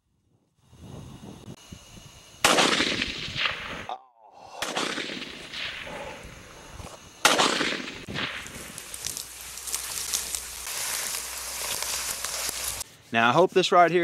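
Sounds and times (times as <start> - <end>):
rifle shots echoing: 2.4 - 3.9, 4.6 - 6.0, 7.2 - 8.8.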